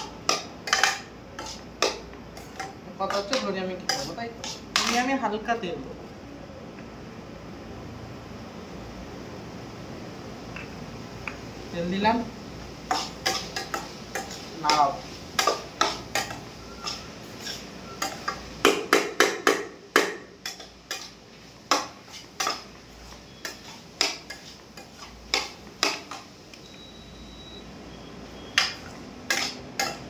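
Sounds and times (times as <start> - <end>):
metal spoon scraping a pan: 0.0 - 5.2, 12.9 - 18.5, 20.4 - 26.3, 28.6 - 30.0.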